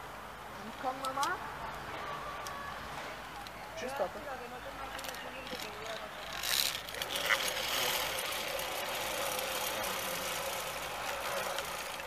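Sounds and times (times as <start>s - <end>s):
pulleys rolling on steel cable: 4.9s - 12.0s.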